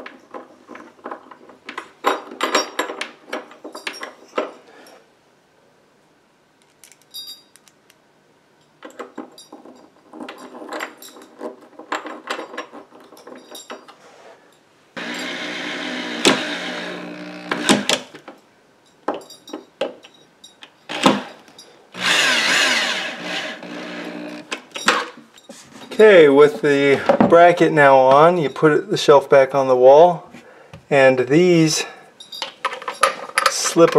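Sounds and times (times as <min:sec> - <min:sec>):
cordless drill driving screw: 0:15.0 - 0:18.1, 0:20.9 - 0:21.3, 0:22.0 - 0:24.6.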